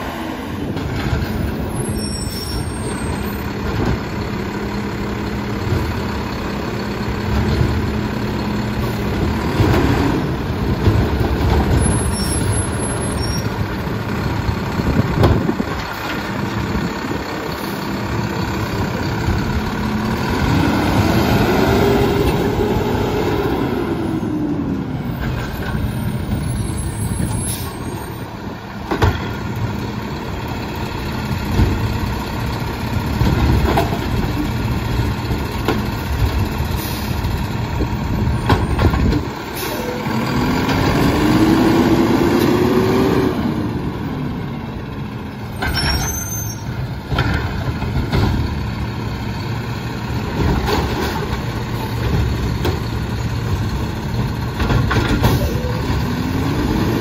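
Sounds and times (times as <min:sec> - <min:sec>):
truck engine revving: 0:04.3 - 0:27.2, 0:30.6 - 0:45.3, 0:47.0 - 0:57.0
trash cart clanking against hopper: 0:37.8 - 0:42.8, 0:45.5 - 0:49.0, 0:50.2 - 0:57.0
air brake hiss: 0:39.6 - 0:40.0.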